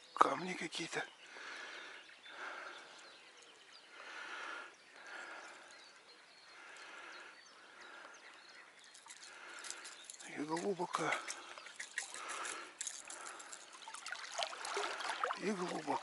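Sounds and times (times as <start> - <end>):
legs wading through water: 7.6 - 16.0.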